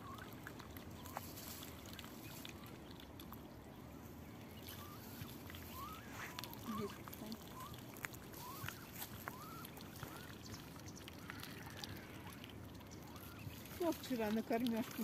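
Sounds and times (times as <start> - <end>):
bills dabbling in water: 0.0 - 15.0
ducklings peeping: 0.0 - 15.0.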